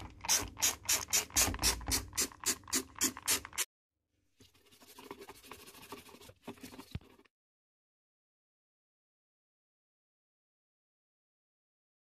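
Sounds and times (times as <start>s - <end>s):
toothbrush scrubbing plastic: 0.0s - 3.7s, 4.4s - 7.3s.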